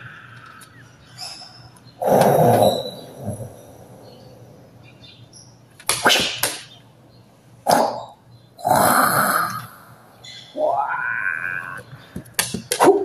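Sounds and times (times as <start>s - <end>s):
man's mock kung-fu cries: 10.6s - 11.9s.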